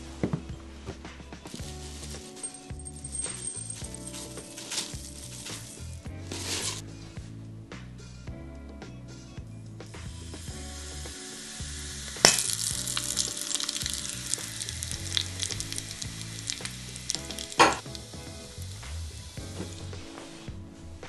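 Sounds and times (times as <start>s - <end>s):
hot oil sizzling and crackling: 4.0s - 6.8s, 9.9s - 20.5s.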